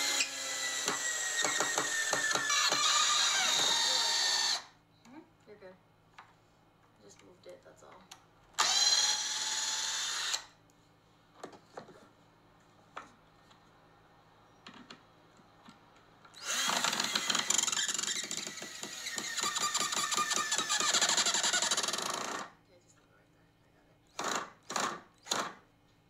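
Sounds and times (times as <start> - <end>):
cordless drill boring into wood: 0.0 - 4.7, 8.6 - 10.5, 16.4 - 22.5, 24.1 - 25.6.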